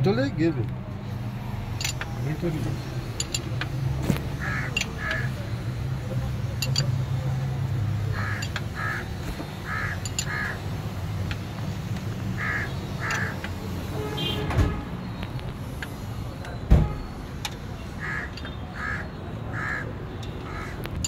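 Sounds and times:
bird calling: 0:08.1 - 0:10.6, 0:12.4 - 0:13.4.

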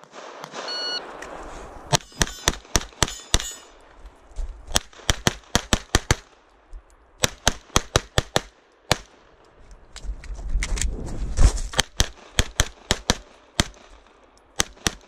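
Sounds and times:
metallic ring of steel plates: 0:02.0 - 0:03.8.

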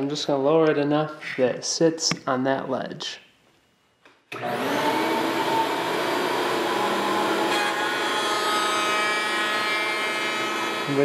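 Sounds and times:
router whining: 0:04.3 - 0:11.0.

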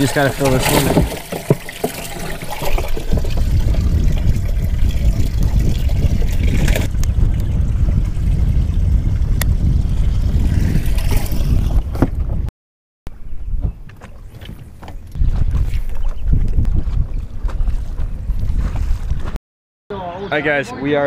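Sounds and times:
water noise: 0:00.0 - 0:12.5
wind rumble on microphone: 0:02.6 - 0:12.5, 0:13.1 - 0:19.4.

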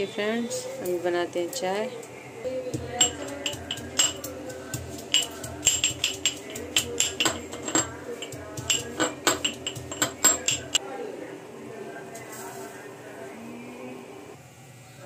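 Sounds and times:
background music: 0:00.0 - 0:10.8
pestle clinking in metal mortar: 0:02.8 - 0:10.8.

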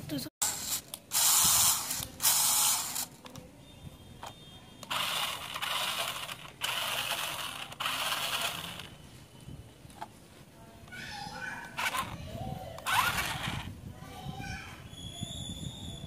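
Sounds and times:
toy car motor whirring: 0:00.4 - 0:03.2, 0:04.8 - 0:08.9, 0:11.8 - 0:12.2, 0:12.8 - 0:13.7.

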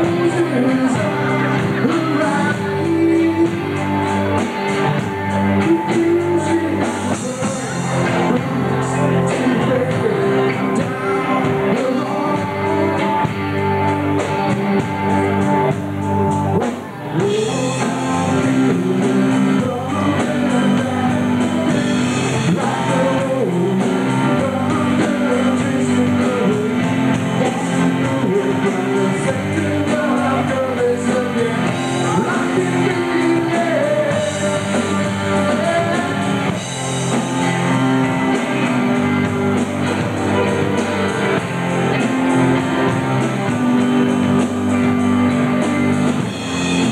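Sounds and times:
man singing into a microphone: 0:00.0 - 0:13.9, 0:16.4 - 0:36.8
rock band playing: 0:00.0 - 0:46.9.

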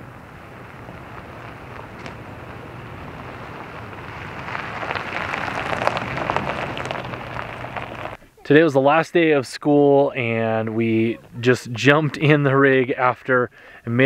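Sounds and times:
tyres crunching on gravel: 0:00.0 - 0:08.2.

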